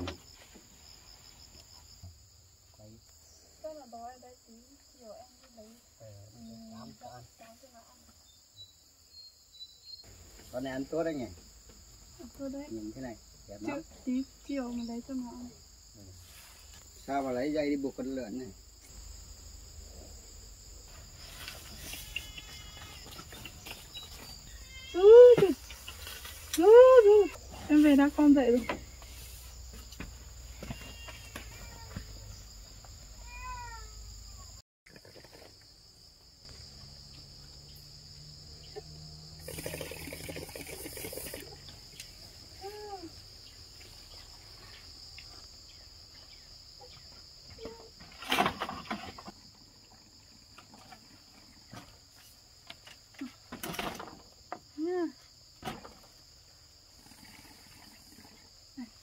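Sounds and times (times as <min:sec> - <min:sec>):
insect chorus: 0:00.0 - 0:59.0
knocks and rustles: 0:46.9 - 0:49.6, 0:50.4 - 0:54.8.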